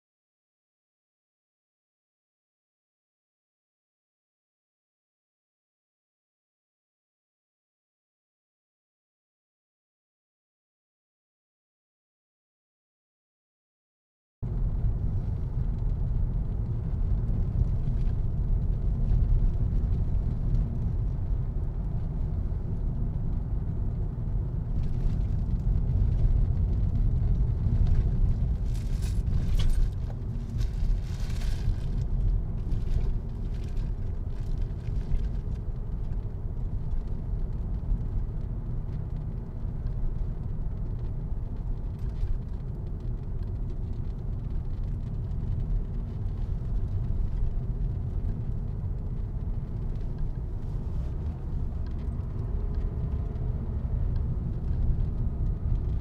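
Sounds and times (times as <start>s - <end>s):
car engine and road rumble: 14.4s - 56.0s.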